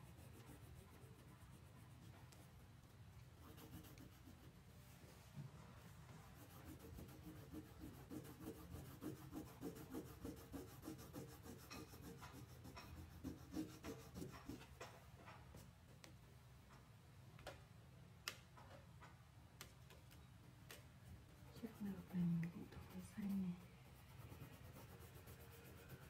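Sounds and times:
crayon rubbing on paper: 3.4 - 4.6, 6.3 - 14.6, 21.5 - 26.0.

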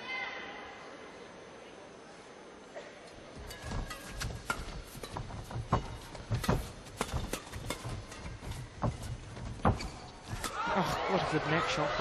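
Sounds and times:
badminton rackets hitting shuttlecock: 3.4 - 11.3.

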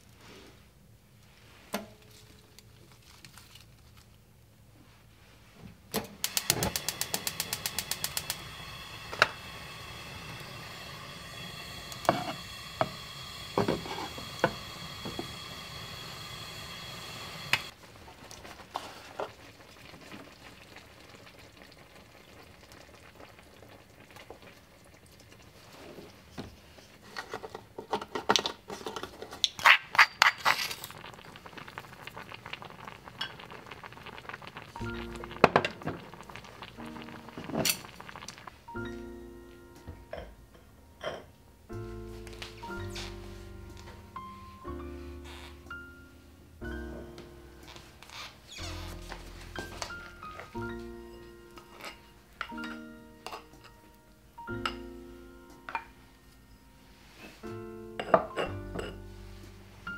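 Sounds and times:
gas flame hissing: 5.9 - 17.8, 31.0 - 38.5
gas stove igniter clicking: 6.0 - 17.7.

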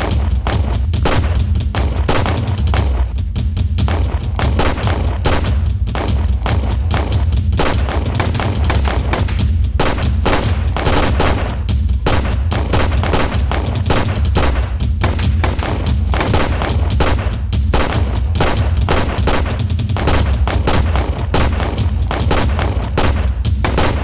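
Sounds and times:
pistol shots: 0.0 - 3.0, 3.8 - 24.0.

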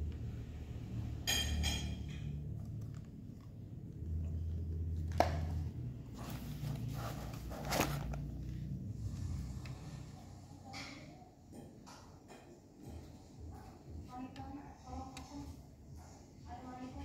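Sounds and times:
rustling handling noise: 6.0 - 8.7.

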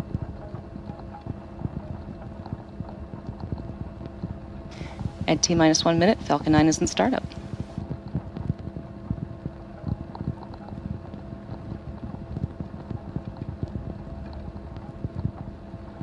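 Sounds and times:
faint steady hum: 0.0 - 16.0
scattered crackles: 0.0 - 16.0
wind buffeting microphone: 0.0 - 16.0.

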